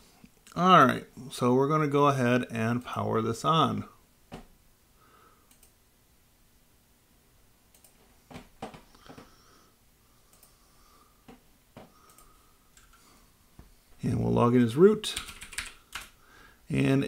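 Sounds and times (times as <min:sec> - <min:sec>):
computer mouse clicks: 0:05.5 - 0:05.8, 0:07.7 - 0:08.0, 0:10.3 - 0:10.6, 0:12.0 - 0:13.0.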